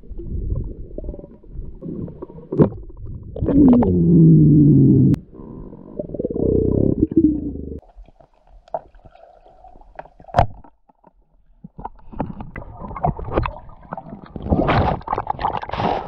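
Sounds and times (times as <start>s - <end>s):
underwater clicks and knocks: 2.5s - 4.0s, 10.0s - 13.7s.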